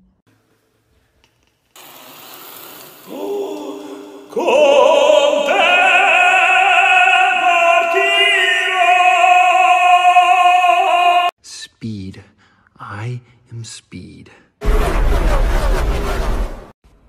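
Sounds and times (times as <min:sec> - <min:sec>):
operatic singing: 0:03.1 - 0:11.4.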